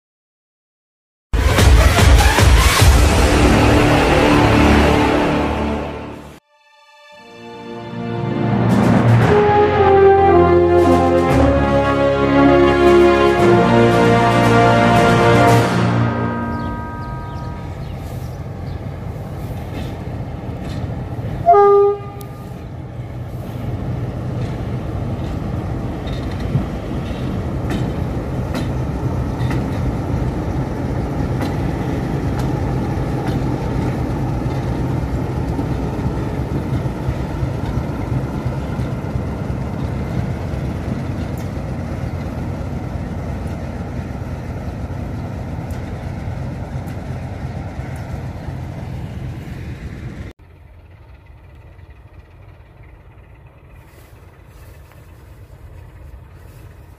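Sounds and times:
diesel engine rumble: 0:01.4 - 0:06.4, 0:08.2 - 0:56.9
locomotive horn blast: 0:01.4 - 0:06.4, 0:07.2 - 0:18.5, 0:21.2 - 0:23.7
train wheels on rails: 0:12.5 - 0:56.9.

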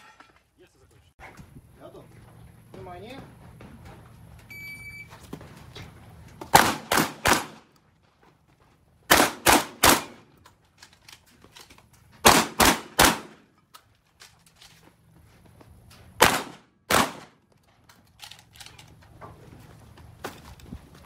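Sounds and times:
shot timer beep: 0:04.5 - 0:05.1
shotgun shots: 0:06.5 - 0:07.7, 0:09.1 - 0:10.3, 0:12.2 - 0:13.5, 0:16.2 - 0:17.4.

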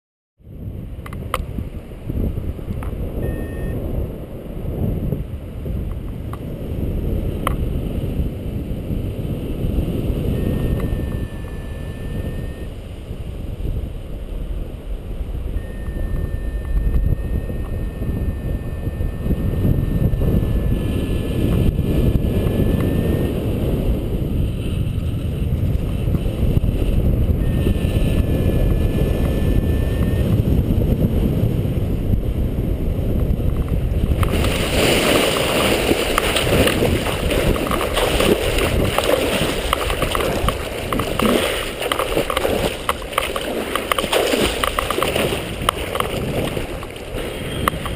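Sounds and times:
wind buffeting microphone: 0:00.4 - 0:47.9
thin steady high tone: 0:15.6 - 0:20.9
water splashing and sloshing: 0:34.2 - 0:47.9.

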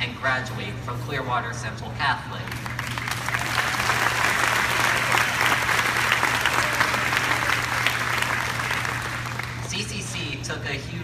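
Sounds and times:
steady low hum: 0:00.0 - 0:11.0
audience applauding: 0:02.5 - 0:09.7.

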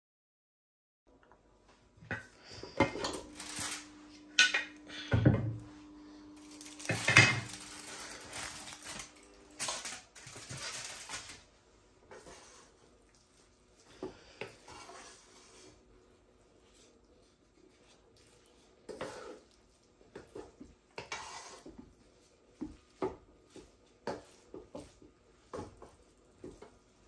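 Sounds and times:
spatula scraping rice in pan: 0:06.4 - 0:11.2, 0:12.0 - 0:27.0.

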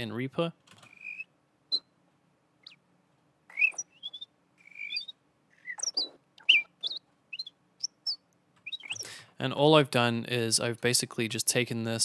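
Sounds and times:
bird chirps and whistles: 0:00.9 - 0:01.9, 0:03.5 - 0:09.1.

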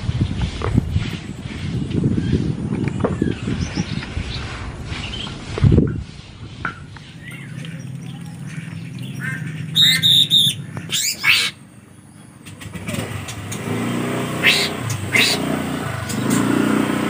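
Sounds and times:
songbird chirps and whistles: 0:07.0 - 0:11.6
passing motor vehicle drone: 0:07.0 - 0:17.0.

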